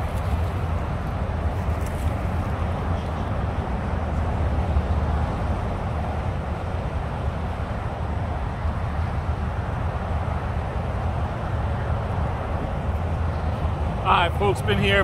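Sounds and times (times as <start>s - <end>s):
highway traffic rumble: 0.0s - 15.0s.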